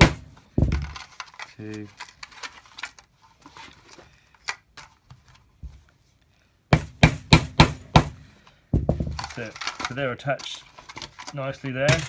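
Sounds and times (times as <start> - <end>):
plastic belt rustling: 0.5 - 5.5, 9.0 - 12.0.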